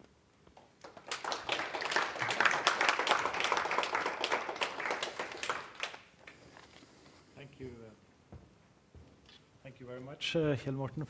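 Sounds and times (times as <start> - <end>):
audience applauding: 0.6 - 6.4.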